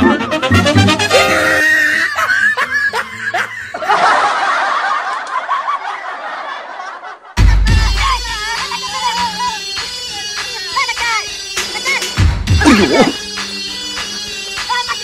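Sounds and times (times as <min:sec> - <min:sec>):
people laughing: 0:01.6 - 0:07.9, 0:12.6 - 0:13.2
music with deep bass: 0:07.4 - 0:14.9.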